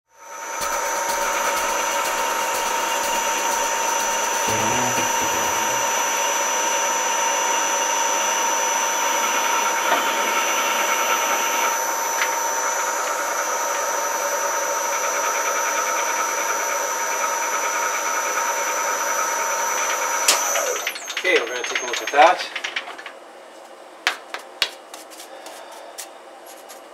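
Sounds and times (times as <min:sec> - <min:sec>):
thin high tone: 0:04.4 - 0:06.7.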